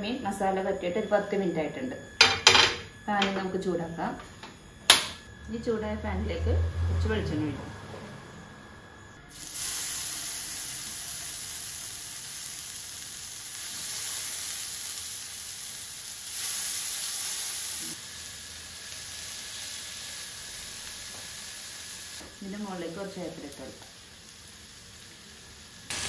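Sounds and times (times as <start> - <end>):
fish sizzling in hot oil: 9.3 - 26.0.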